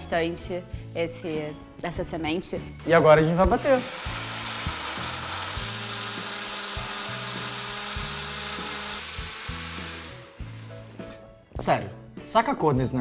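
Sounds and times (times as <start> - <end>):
blender motor running: 3.5 - 11.2.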